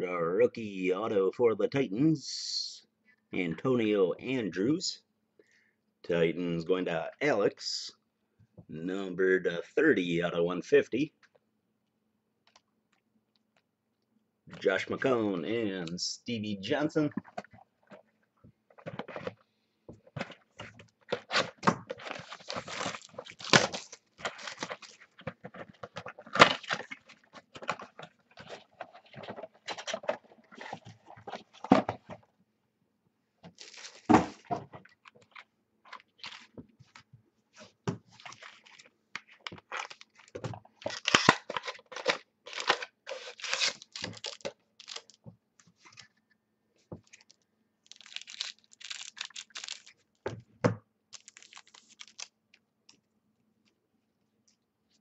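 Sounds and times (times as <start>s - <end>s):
card packs torn and crinkled: 20.6s - 31.4s, 33.6s - 36.6s, 38.2s - 45.2s, 47.1s - 50.1s, 51.1s - 52.3s.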